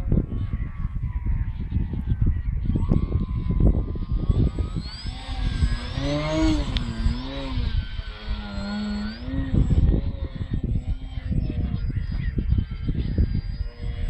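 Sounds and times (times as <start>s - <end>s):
wind on microphone: 0.0s - 14.0s
model plane motor whining: 1.5s - 14.0s.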